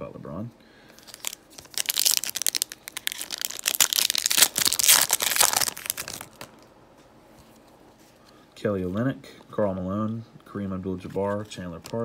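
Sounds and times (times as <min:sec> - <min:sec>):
foil wrapper crackling: 0:01.0 - 0:06.6.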